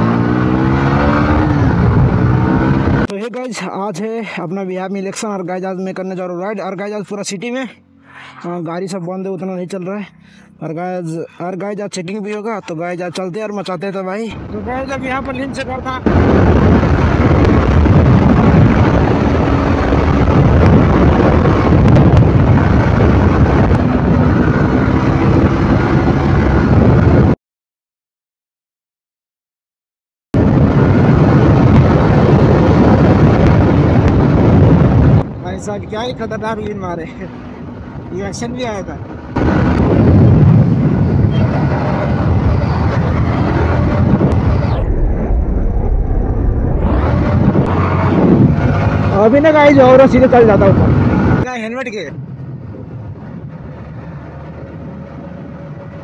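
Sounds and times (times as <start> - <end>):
motorcycle engine drone: 0.0 - 3.1, 14.3 - 27.4, 30.4 - 56.0
wind rushing over microphone: 0.0 - 3.1, 14.2 - 27.4, 30.4 - 56.0.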